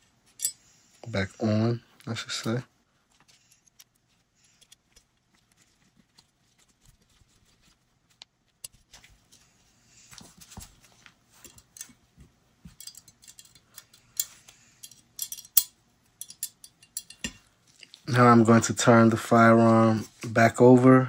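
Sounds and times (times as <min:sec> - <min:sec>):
small metal clicks and scrapes: 0:00.3 - 0:00.8, 0:02.0 - 0:09.4, 0:12.8 - 0:18.0.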